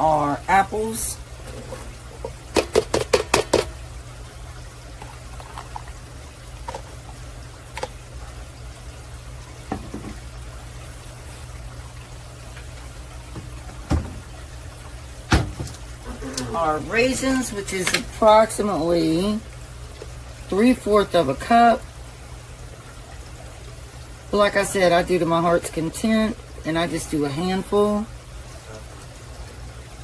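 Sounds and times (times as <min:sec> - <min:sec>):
cup knocked against bowl: 0:09.7 - 0:10.2.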